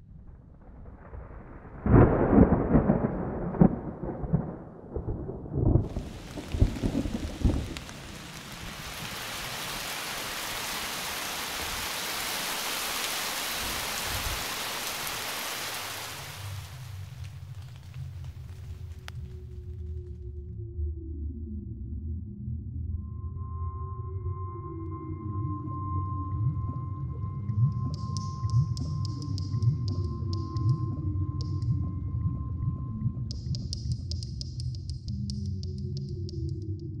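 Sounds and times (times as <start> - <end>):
thunder cracks and rumbles: 0.1 - 9.6
heavy rain hiss: 5.8 - 19.4.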